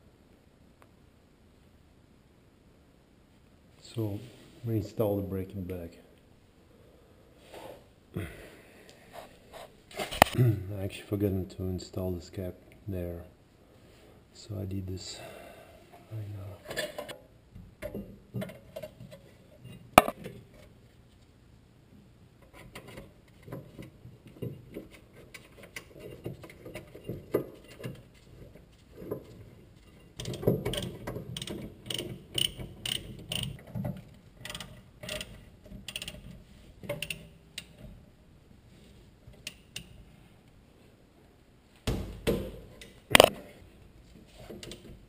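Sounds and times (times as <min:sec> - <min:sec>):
ratchet wrench clicking: 0:35.9 - 0:36.2.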